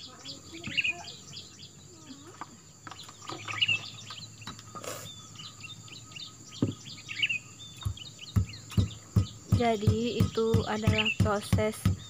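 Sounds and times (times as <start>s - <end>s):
small birds chirping: 0.0s - 12.0s
dull thump: 6.6s - 6.8s, 7.8s - 12.0s.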